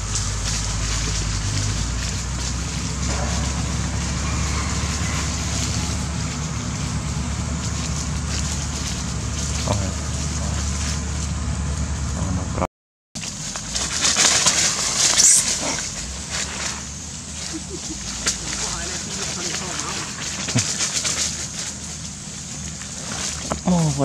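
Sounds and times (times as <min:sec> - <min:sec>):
outdoor hiss: 0:00.0 - 0:12.0, 0:13.2 - 0:24.0
diesel machine droning: 0:00.0 - 0:24.0.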